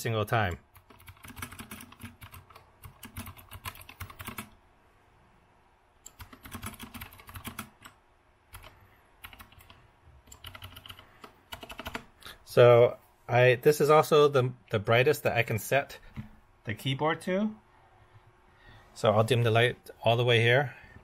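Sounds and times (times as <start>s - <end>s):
clicky mechanical keyboard typing: 0.8s - 4.5s, 6.0s - 12.1s.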